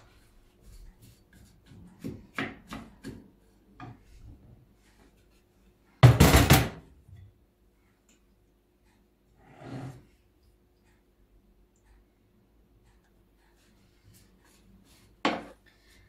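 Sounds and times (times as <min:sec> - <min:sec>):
wooden spoon scraping in pan: 0:09.4 - 0:10.2.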